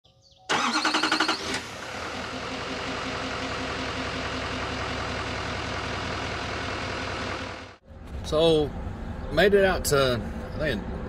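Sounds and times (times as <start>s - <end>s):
vehicle engine revving and idling: 0.6s - 9.3s.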